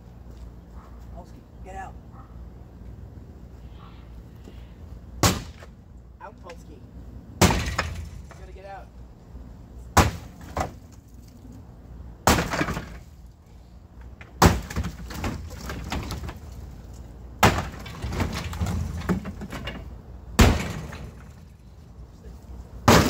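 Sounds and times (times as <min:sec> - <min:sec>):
sledgehammer strikes: 0:05.2 - 0:05.7, 0:07.4 - 0:08.5, 0:09.9 - 0:10.8, 0:12.2 - 0:13.1, 0:14.4 - 0:16.4, 0:17.4 - 0:19.7, 0:20.3 - 0:21.5
wood breaking and debris clattering: 0:07.4 - 0:08.4, 0:12.2 - 0:13.2, 0:14.3 - 0:21.6.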